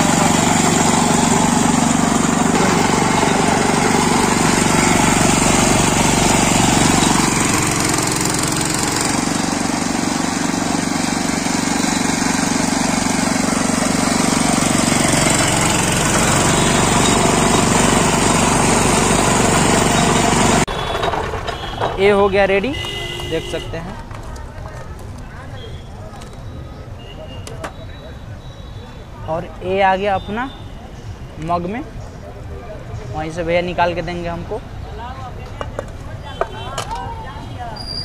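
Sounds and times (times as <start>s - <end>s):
sugarcane crushing machine running: 0.0s - 24.4s.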